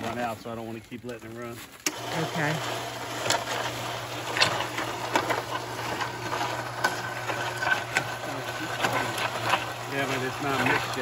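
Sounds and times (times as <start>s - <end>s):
concrete mixer humming: 1.4s - 11.0s
dry mix ticking and rattling: 3.1s - 11.0s.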